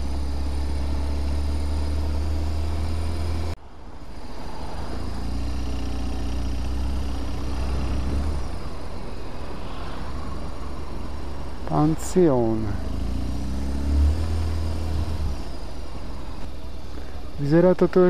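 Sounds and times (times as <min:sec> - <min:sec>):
motorcycle engine running: 0:00.0 - 0:03.5
road and wind noise: 0:00.0 - 0:18.0.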